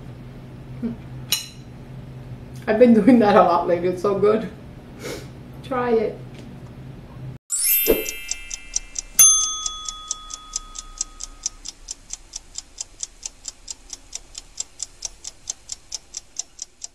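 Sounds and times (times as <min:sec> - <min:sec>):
bell ding: 0:07.5 - 0:11.5
clock ticking: 0:07.9 - 0:16.9.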